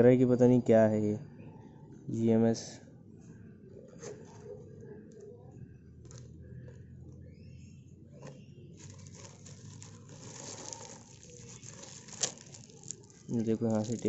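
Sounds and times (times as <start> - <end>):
plastic film crinkling: 8.8 - 14.0.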